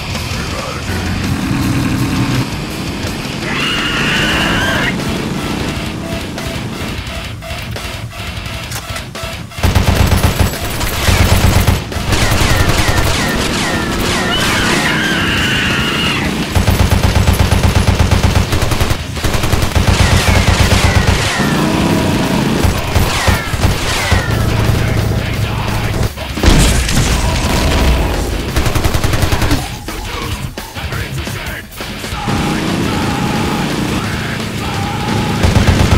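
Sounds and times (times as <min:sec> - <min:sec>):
automatic gunfire bursts: 0:09.6 - 0:14.5, 0:16.5 - 0:24.4, 0:28.6 - 0:29.7, 0:35.4 - 0:35.9.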